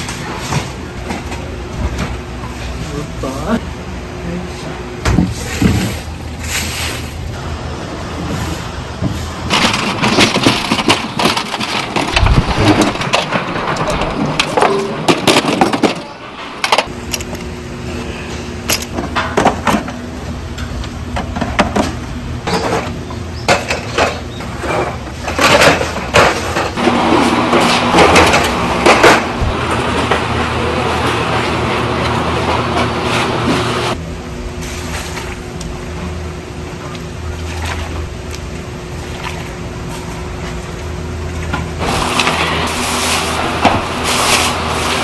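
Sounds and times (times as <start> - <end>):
steady low hum: 0.0 - 45.0
broom sweeping leaves on asphalt: 5.3 - 7.3, 8.2 - 9.4, 34.6 - 35.4, 41.8 - 45.0
glass bottles clinking in crates: 9.5 - 17.4.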